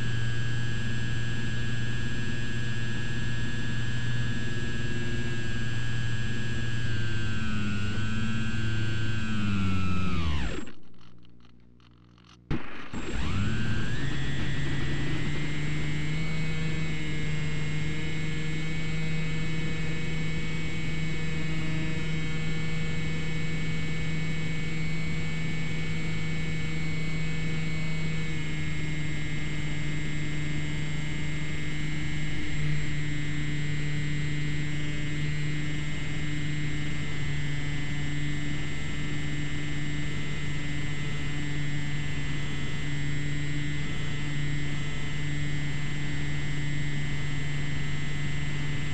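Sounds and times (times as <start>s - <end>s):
electric motor whine: 0.0s - 11.5s, 12.1s - 48.9s
propeller buzz: 12.5s - 17.1s.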